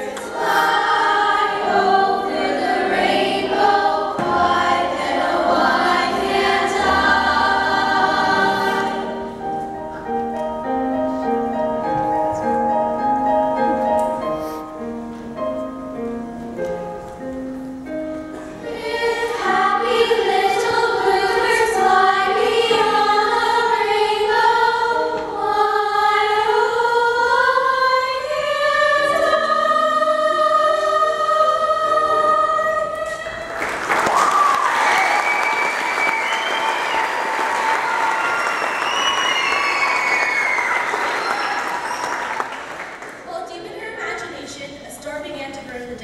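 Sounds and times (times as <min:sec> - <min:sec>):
children's choir singing: 0:00.0 - 0:12.9, 0:18.4 - 0:43.0
audience applause: 0:33.5 - 0:43.3.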